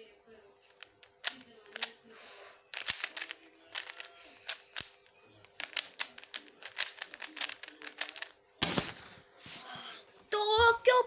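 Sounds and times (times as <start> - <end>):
puzzle cube layers clicking: 1.1 - 2.0, 2.7 - 5.0, 5.6 - 8.3.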